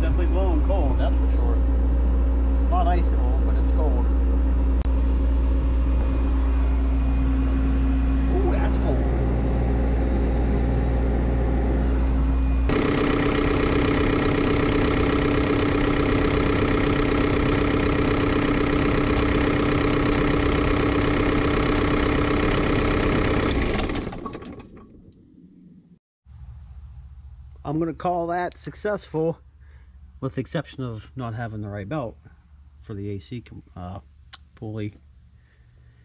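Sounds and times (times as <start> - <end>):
excavator diesel engine running: 0.0 - 25.2.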